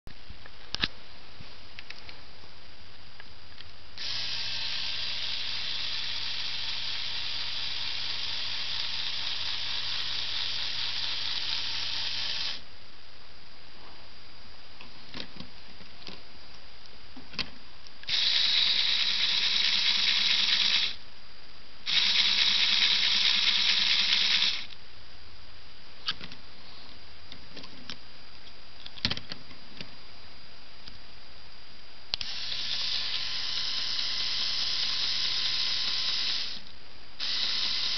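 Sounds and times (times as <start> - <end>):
small electric motor whining: 4.0 - 12.6, 18.1 - 21.0, 21.9 - 24.7, 32.2 - 37.9.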